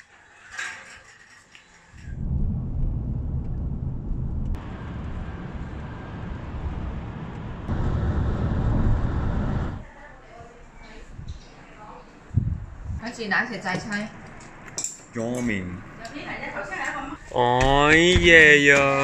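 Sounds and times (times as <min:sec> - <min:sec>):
vehicle rumbling on the move: 0:02.1 - 0:09.8.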